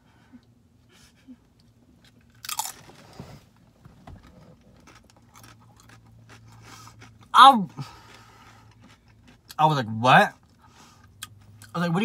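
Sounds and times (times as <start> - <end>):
crunchy chewing: 2.0 - 2.9, 4.2 - 9.6
crunchy food bite: 2.4 - 2.8.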